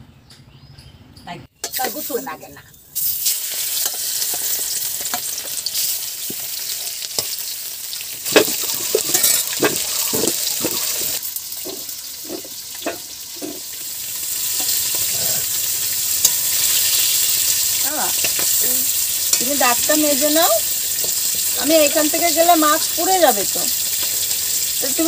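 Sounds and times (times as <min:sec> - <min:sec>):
metal spatula scraping wok: 0:01.6 - 0:07.5, 0:08.2 - 0:19.8
fish sizzling in hot oil: 0:01.6 - 0:25.0.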